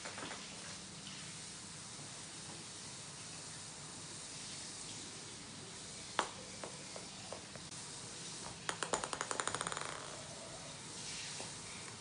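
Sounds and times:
ping-pong balls bouncing on wood floor: 6.2 - 7.7, 8.4 - 10.6.

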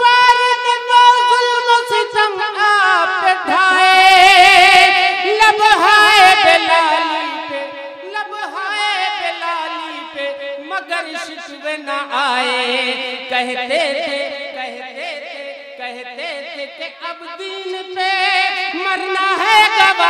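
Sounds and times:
man singing unaccompanied: 0.0 - 20.0.

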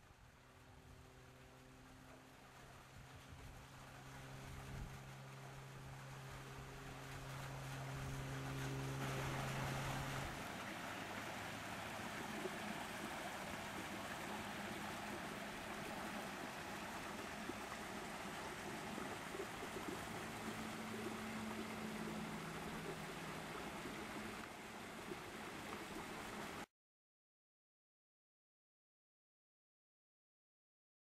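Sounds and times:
low steady hum: 0.0 - 26.7
water cascading into pool: 2.4 - 26.7.

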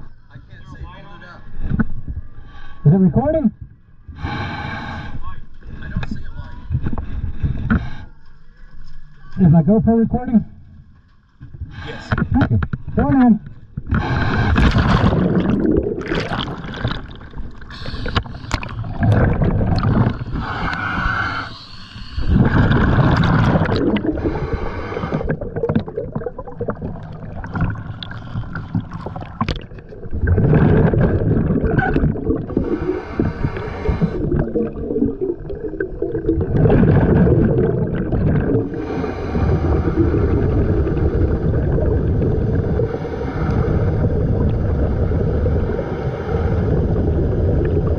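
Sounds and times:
regulator exhaust bubbles: 12.3 - 20.8, 22.2 - 47.9
underwater bubbles rushing: 13.8 - 21.0, 22.1 - 47.9.

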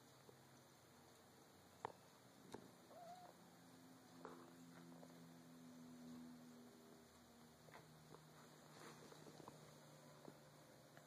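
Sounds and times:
low steady hum: 0.0 - 11.0
cat chirp: 2.9 - 3.4.

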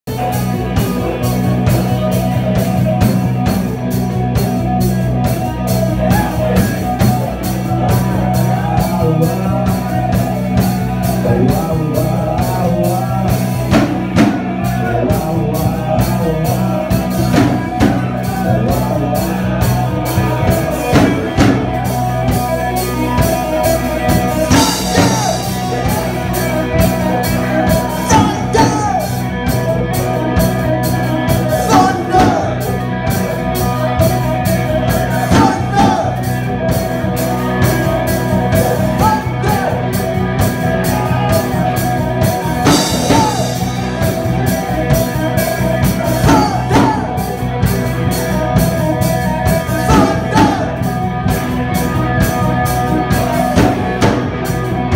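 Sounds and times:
bass guitar: 0.0 - 54.9
drum kit: 0.1 - 54.9
electric guitars: 0.1 - 54.9
man singing into microphone: 6.0 - 22.1, 22.8 - 29.6, 30.4 - 36.5, 38.5 - 40.0, 40.6 - 47.4, 48.0 - 50.9.

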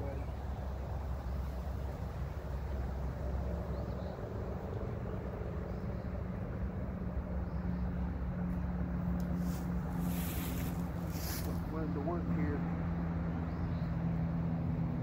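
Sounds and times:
short rustles: 9.2 - 11.7.

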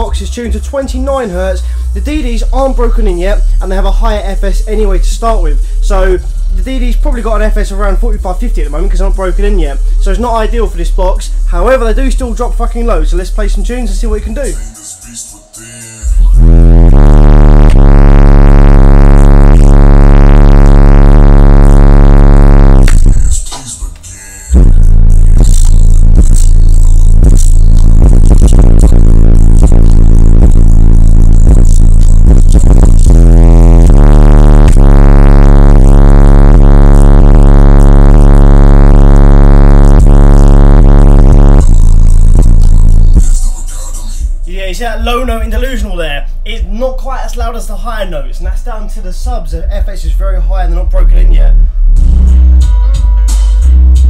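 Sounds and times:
deep bass-heavy music from subwoofers: 0.0 - 54.0.

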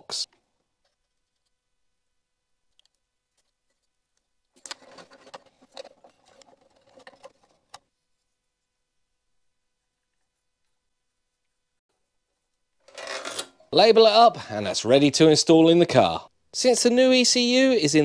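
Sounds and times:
faint scraping and rustling: 0.8 - 1.7, 3.3 - 8.7.

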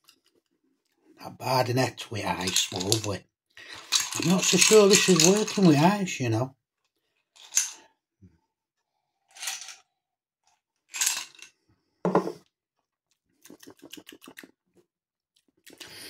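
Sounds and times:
glass knocking on stone worktop: 12.1 - 12.4
noisy slurps from a glass: 13.3 - 14.6.

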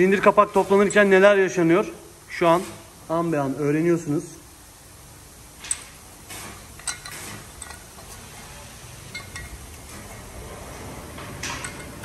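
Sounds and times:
metal parts clinking: 6.8 - 8.0, 9.1 - 9.7, 11.4 - 12.0.

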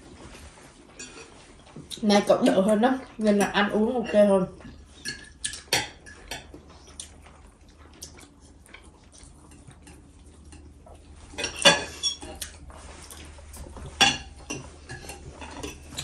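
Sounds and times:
cutlery clinking on plates: 5.0 - 6.5, 11.3 - 12.7, 13.8 - 16.0.

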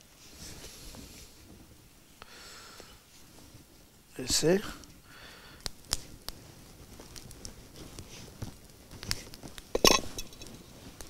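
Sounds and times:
knife clattering on wooden plate: 9.8 - 10.5.

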